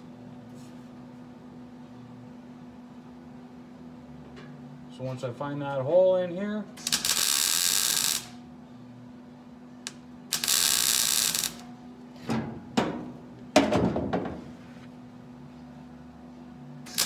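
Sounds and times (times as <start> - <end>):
steady low hum: 0.0 - 17.0
welding arc crackling: 6.8 - 8.4, 9.8 - 11.7.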